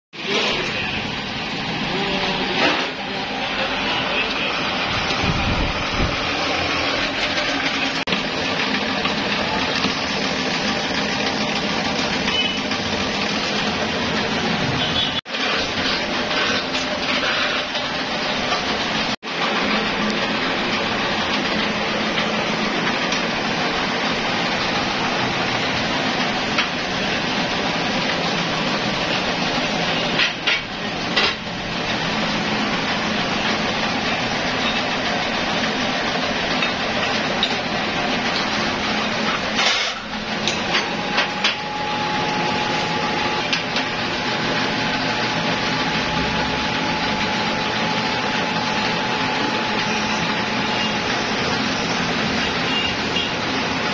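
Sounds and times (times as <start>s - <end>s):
injection molding machine running: 0.2s - 53.9s
steady whine: 39.2s - 53.9s.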